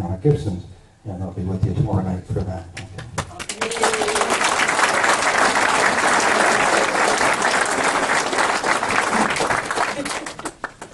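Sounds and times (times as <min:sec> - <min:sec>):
audience applauding: 0:03.1 - 0:10.9.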